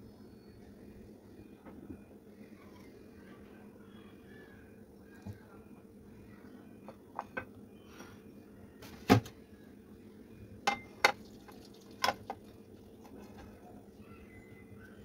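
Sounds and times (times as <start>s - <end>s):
ceramic dishes knocking and clinking: 10.7s - 11.2s.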